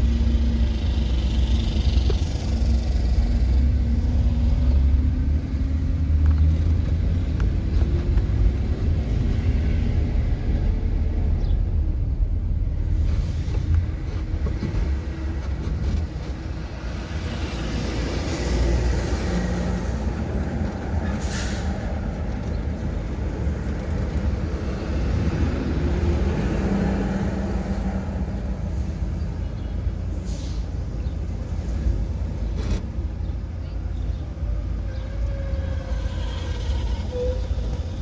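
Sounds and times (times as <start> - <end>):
engine and road rumble in car: 0.0 - 34.4
truck passing hiss: 21.1 - 21.9, 30.1 - 30.8.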